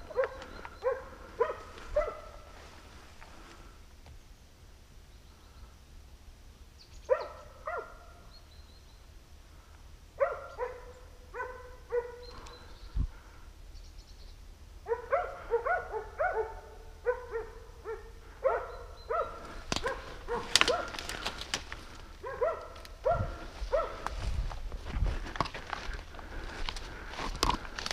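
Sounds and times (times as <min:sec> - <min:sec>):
dogs barking: 0:00.0 - 0:02.6, 0:07.1 - 0:08.3, 0:10.2 - 0:12.5, 0:14.8 - 0:21.4, 0:22.2 - 0:24.2
brush and twigs crackling: 0:00.0 - 0:04.2, 0:19.1 - 0:27.9.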